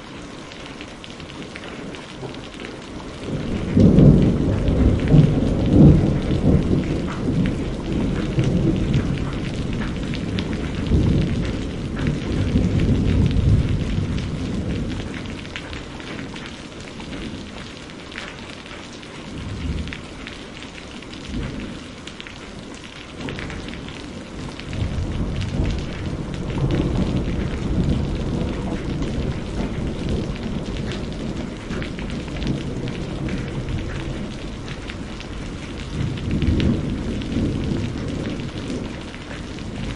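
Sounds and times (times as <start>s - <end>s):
steady rain: 0.0s - 39.9s
rolling thunder: 2.2s - 16.5s, 23.1s - 39.9s.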